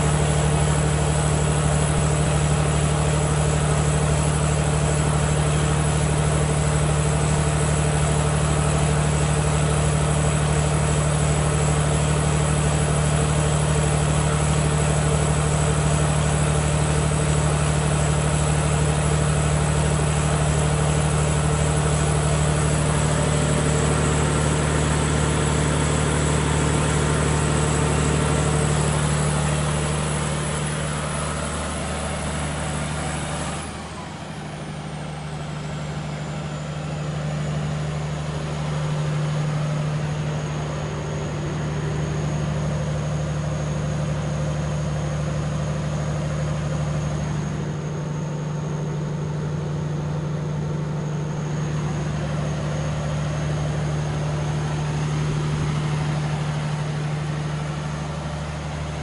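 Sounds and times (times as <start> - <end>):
diesel generator running: 0.0 - 59.0
high whine sliding lower: 18.2 - 59.0.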